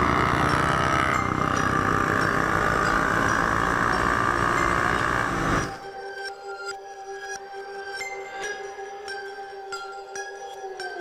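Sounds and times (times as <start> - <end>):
motorcycle engine running: 0.0 - 5.8.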